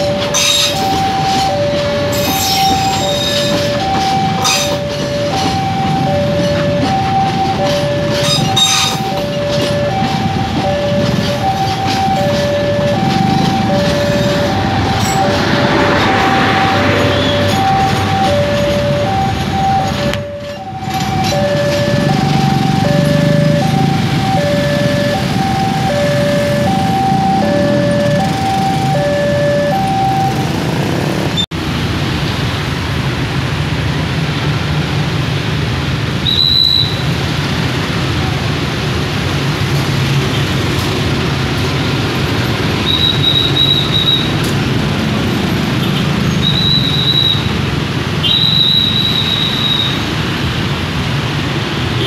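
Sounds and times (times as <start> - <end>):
train wheel squeal: 0.0 - 27.1, 36.2 - 37.1, 42.7 - 44.6, 46.2 - 47.6, 48.2 - 50.1
level crossing warning chime: 0.0 - 31.0
road traffic: 0.0 - 52.0
slow train rumble: 0.0 - 52.0.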